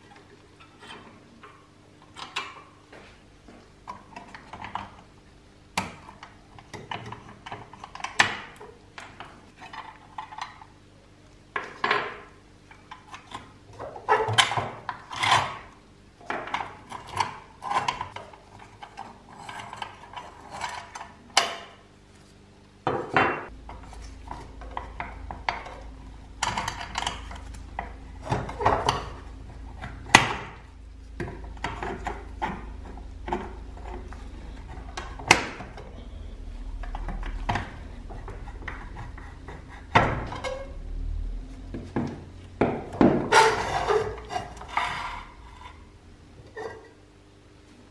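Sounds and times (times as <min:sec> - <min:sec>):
metal scraping: 0:43.0 - 0:47.0.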